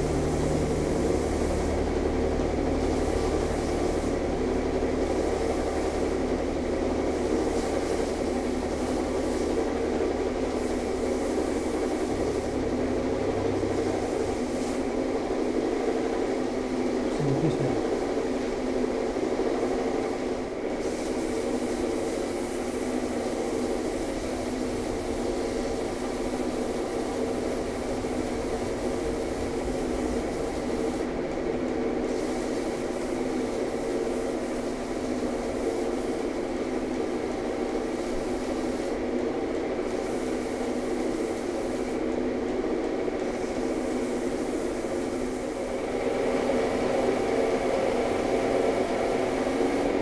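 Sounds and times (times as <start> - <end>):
belt sander sanding wood: 2.8 - 16.4.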